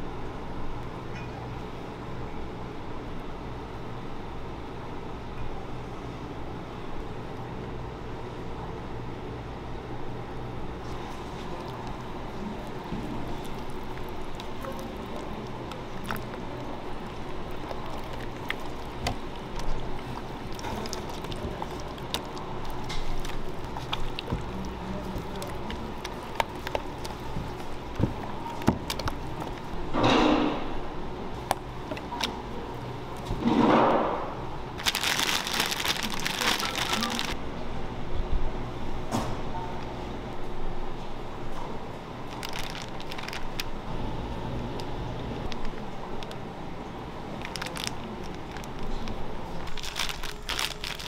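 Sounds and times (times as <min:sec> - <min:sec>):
kitchen hum: 0:00.0 - 0:51.0
plastic piping bag crinkling: 0:11.0 - 0:29.8, 0:34.8 - 0:37.4, 0:42.2 - 0:43.8, 0:47.3 - 0:51.0.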